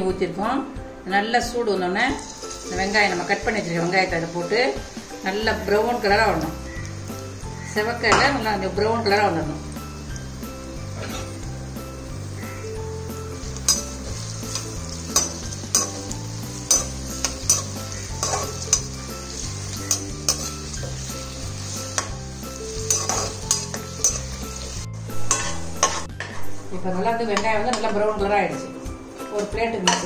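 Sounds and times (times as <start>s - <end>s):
onions sizzling in a pan: 1.9s - 30.0s
spatula clacking and scraping pan: 11.0s - 11.4s, 13.5s - 26.4s, 29.4s - 30.0s.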